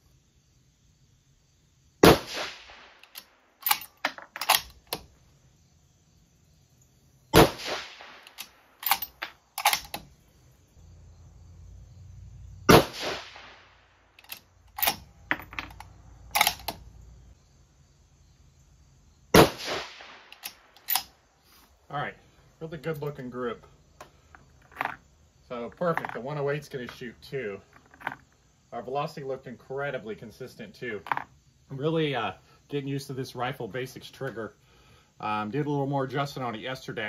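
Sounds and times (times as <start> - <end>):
rifle shots: 2.0 - 3.8, 7.3 - 10.0, 12.7 - 13.7, 19.4 - 21.1
rifle bolt metallic clicks: 3.0 - 5.1, 8.2 - 10.1, 14.2 - 16.8, 20.3 - 21.1.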